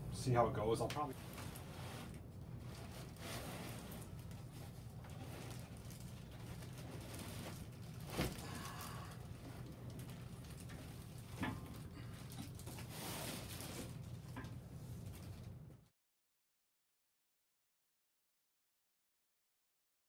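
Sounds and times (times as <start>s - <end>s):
steady low hum: 0.0s - 15.9s
plastic wrapping rustling: 1.1s - 15.6s.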